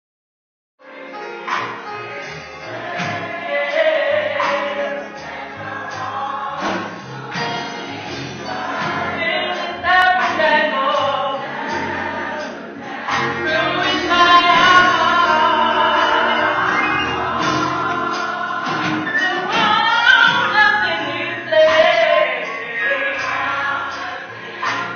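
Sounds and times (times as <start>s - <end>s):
gospel choir singing: 0.8s - 24.9s
instrumental accompaniment: 0.8s - 24.9s
steady bass line: 11.0s - 21.8s.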